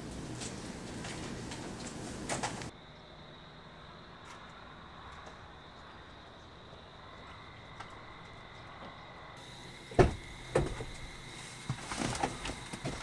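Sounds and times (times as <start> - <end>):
car door clunking: 9.8 - 11.1
rustling in car seat: 10.1 - 13.0.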